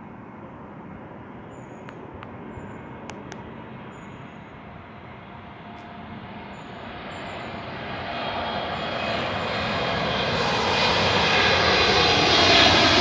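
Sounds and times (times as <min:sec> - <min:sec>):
faint steady whine: 0:00.0 - 0:12.9
distant jet engine rumble: 0:00.0 - 0:13.0.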